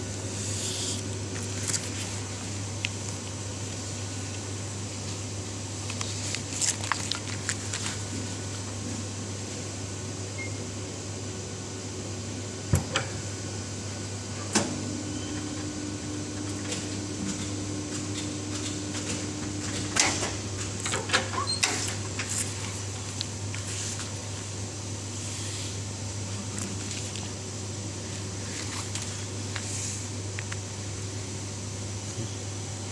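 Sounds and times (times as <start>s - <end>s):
machine humming: 0.0s - 25.2s.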